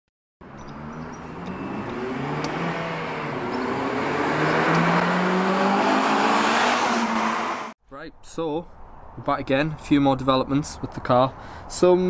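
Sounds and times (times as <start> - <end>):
car engine accelerating: 0.4 - 7.8.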